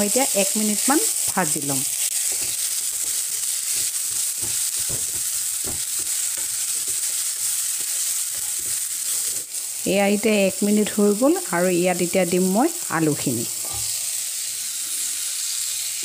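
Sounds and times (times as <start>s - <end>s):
food sizzling in oil: 0.0s - 16.0s
spatula scraping pan: 2.1s - 9.5s.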